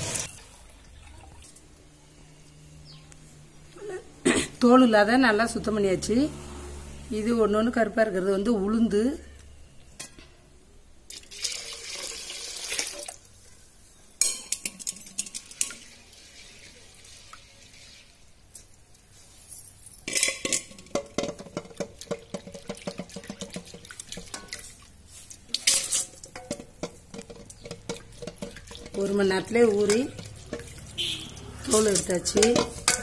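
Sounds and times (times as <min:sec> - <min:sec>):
wet grains clicking against metal: 0:20.0 - 0:33.0
water swishing and splashing: 0:21.4 - 0:26.2, 0:27.5 - 0:33.0.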